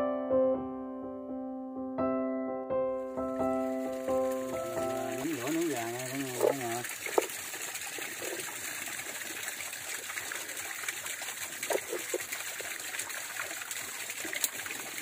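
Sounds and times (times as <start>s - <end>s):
stream water trickling: 3.6s - 15.0s.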